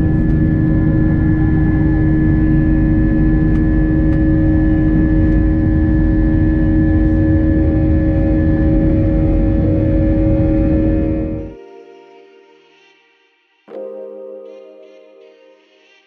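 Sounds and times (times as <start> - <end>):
jet engines roaring in cabin: 0.0 - 11.6
constant tonal hum: 0.0 - 12.3.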